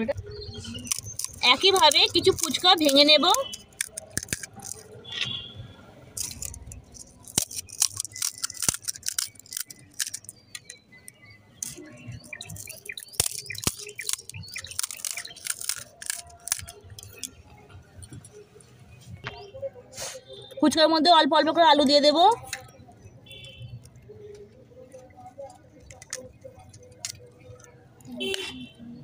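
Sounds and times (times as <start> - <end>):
crisp shells cracking: 0.7 - 5.1, 6.2 - 10.8, 11.6 - 17.4.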